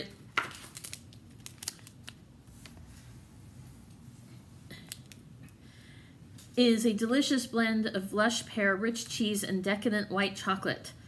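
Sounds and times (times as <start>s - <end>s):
foil packet crinkling: 0.3s - 2.8s.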